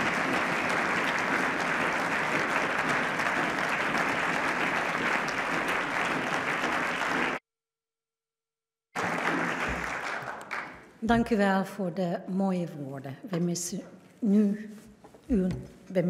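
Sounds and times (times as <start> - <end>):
crowd applauding: 0.0 - 7.4, 9.0 - 11.0.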